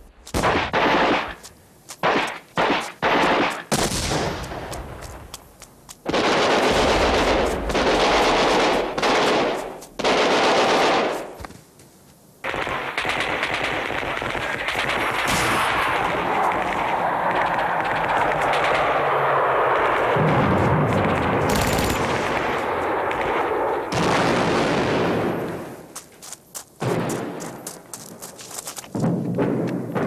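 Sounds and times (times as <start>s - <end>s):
machine-gun fire: 0.4s - 1.4s, 2.0s - 4.6s, 6.0s - 11.3s, 12.4s - 25.3s.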